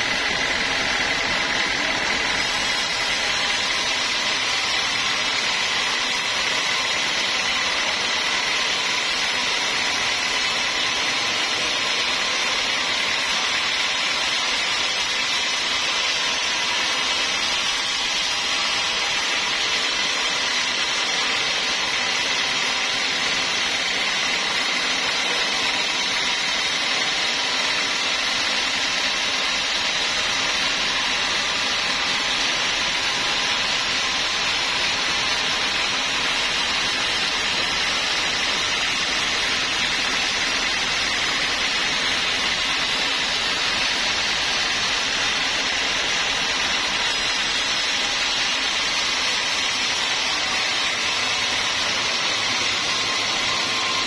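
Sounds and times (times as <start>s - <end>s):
band saw cutting log: 0.0s - 54.0s
saw machine running: 0.0s - 54.0s.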